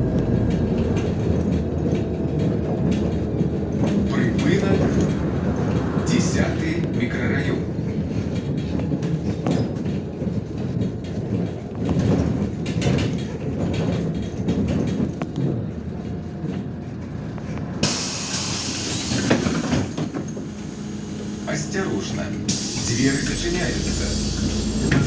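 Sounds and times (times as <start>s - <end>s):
bus body rattling: 0.0s - 25.0s
bus engine and road rumble: 0.0s - 25.0s
loud hiss of released air: 22.5s - 24.8s.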